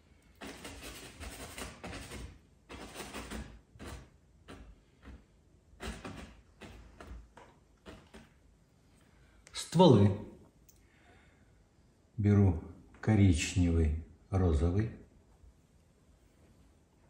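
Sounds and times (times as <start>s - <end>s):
brush scrubbing paint on canvas: 0.0s - 8.6s.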